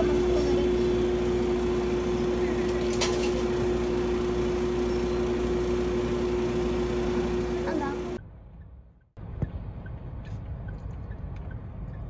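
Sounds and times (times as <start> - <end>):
ice cream machine humming: 0.0 - 8.2.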